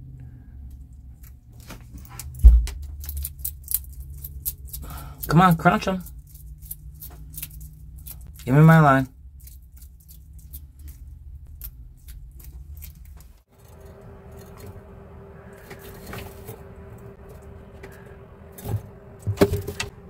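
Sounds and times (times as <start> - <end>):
low hum: 0.0 - 20.0
lizard chewing with crunching clicks: 3.0 - 8.7, 9.3 - 14.7.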